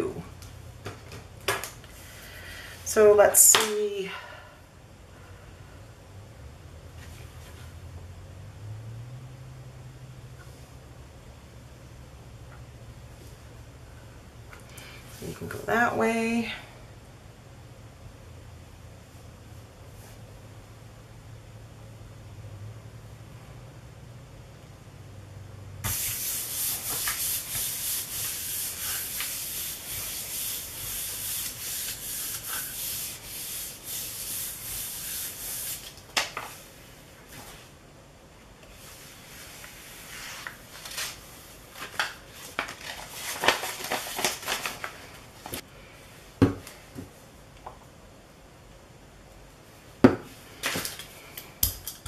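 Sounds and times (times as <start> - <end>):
hand rubbing paper: 25.9 - 36.0
paper crackling: 40.4 - 45.6.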